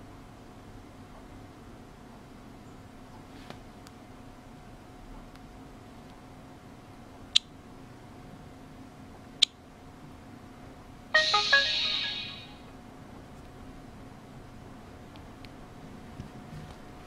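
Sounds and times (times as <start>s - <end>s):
smartphone startup jingle: 11.2s - 12.6s.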